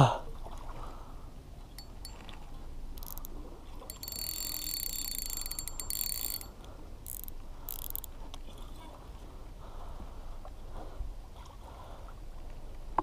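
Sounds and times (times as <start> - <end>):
fishing reel ratcheting: 1.8 - 2.3, 3.0 - 8.2.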